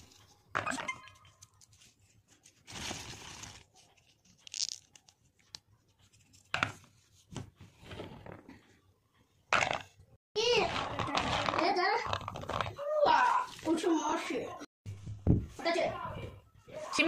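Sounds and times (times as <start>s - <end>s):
bean pods cracking and rustling: 4.0s - 5.7s.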